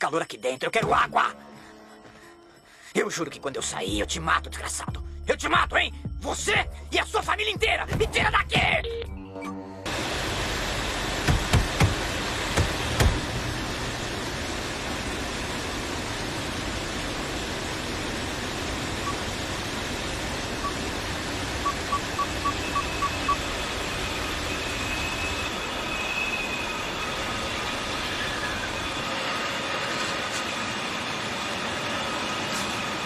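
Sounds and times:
faint steady tones: 16.4 - 32.6
climate control panel beeping: 19.0 - 19.3, 20.6 - 23.5.

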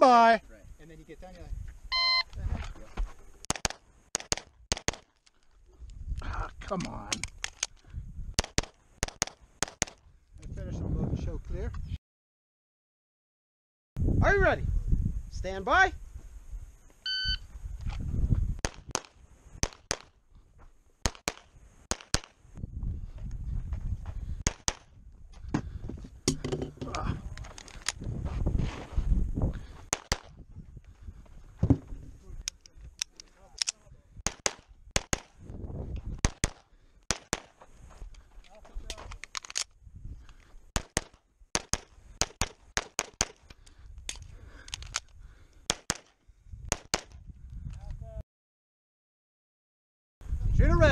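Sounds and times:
pistol shots: 3.5 - 5.1, 21.0 - 22.4, 34.2 - 35.3, 36.2 - 37.6, 40.8 - 43.4.

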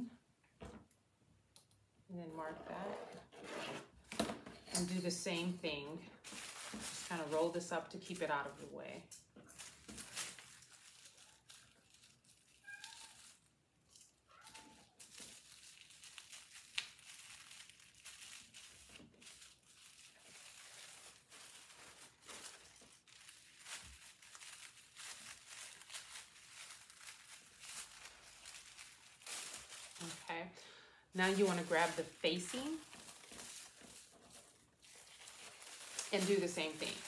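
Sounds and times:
rustling of tissue paper: 5.6 - 8.7, 9.4 - 30.4, 31.2 - 37.0.

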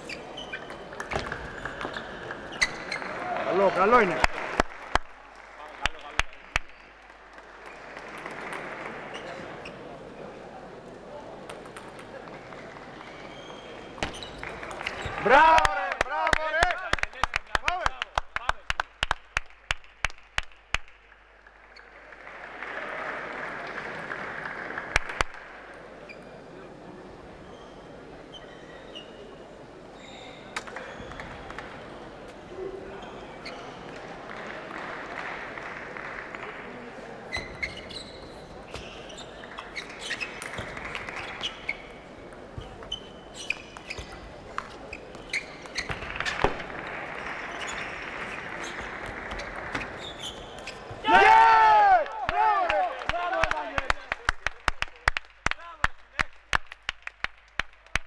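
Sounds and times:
crowd applauding: 2.1 - 9.6, 14.4 - 25.7, 34.0 - 37.1, 40.4 - 41.5, 46.0 - 49.8, 51.1 - 58.0.

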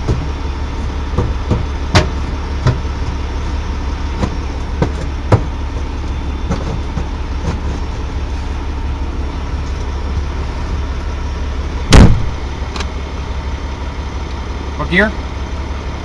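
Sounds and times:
truck diesel engine idling: 0.0 - 16.0
loud thump: 11.9 - 12.4.

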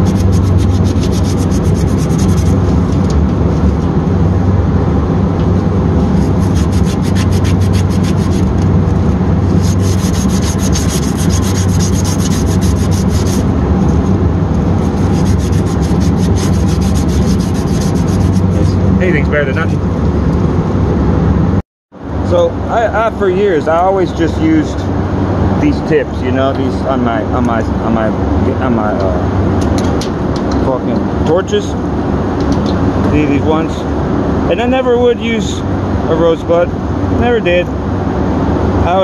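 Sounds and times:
sandpaper rubbing copper tubing: 0.0 - 3.1, 6.0 - 8.6, 9.4 - 13.5, 14.7 - 18.8
steady low hum: 0.0 - 39.0.

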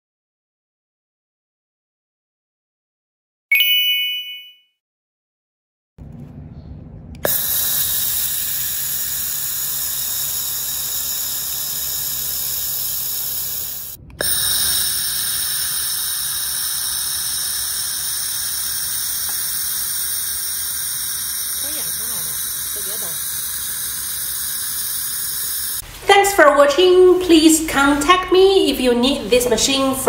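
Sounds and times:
laser welder hissing: 7.2 - 25.8.

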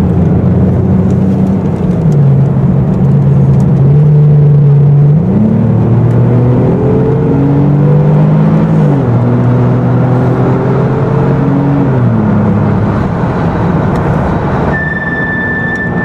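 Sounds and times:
car engine pulling hard: 0.0 - 16.0
steady high whine: 12.8 - 16.0.

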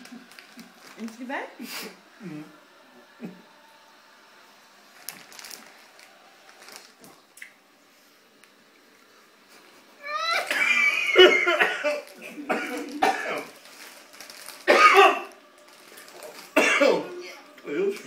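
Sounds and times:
man coughing and clearing throat: 10.5 - 13.5, 14.7 - 15.3, 16.6 - 17.1.

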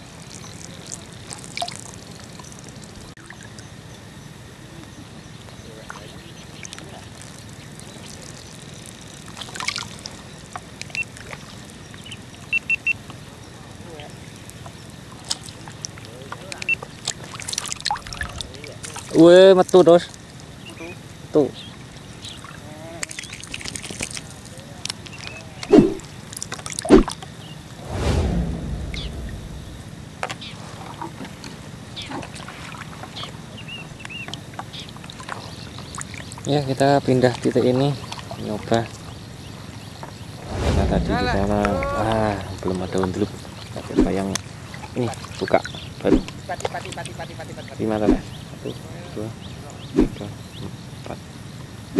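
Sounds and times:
water splashing: 16.6 - 19.2, 26.6 - 27.2
wind rumble on microphone: 27.8 - 30.2, 40.3 - 42.9.

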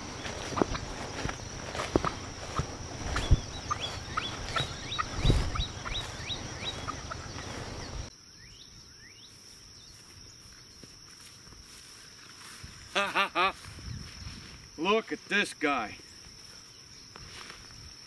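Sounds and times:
footsteps through leaves: 0.0 - 8.0
bird chirping: 0.0 - 10.1.

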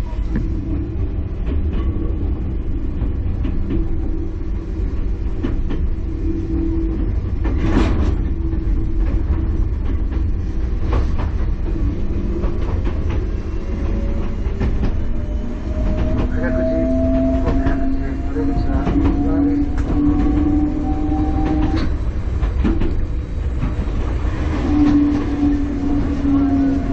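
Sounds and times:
rising train motor whine: 0.0 - 26.9
train rumbling on rails: 0.0 - 26.9
train wheel clicks and knocks: 7.3 - 26.2.

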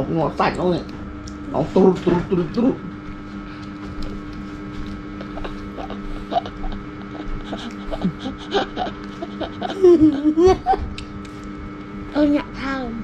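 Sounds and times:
steady low hum: 0.0 - 13.0
children chewing toast: 0.4 - 12.0
child laughing: 5.2 - 11.0.

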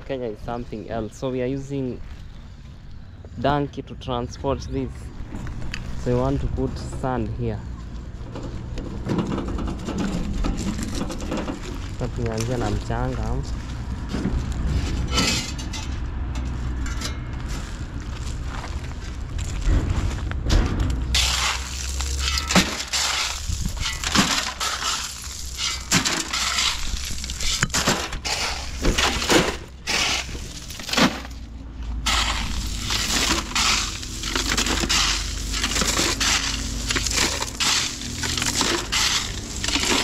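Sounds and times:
gravel shovelled into metal wheelbarrow: 9.4 - 20.2, 21.0 - 31.4, 32.0 - 40.0.

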